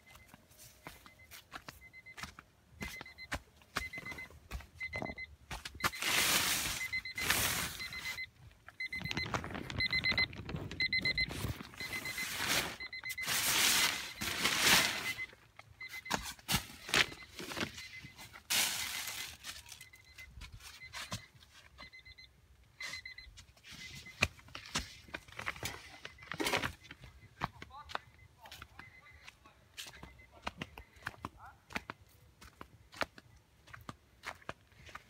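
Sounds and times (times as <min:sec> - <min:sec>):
faint high beeping tone: 0:00.0 - 0:32.0
plastic sheeting crackling: 0:05.9 - 0:08.2, 0:09.0 - 0:15.2, 0:18.5 - 0:19.8.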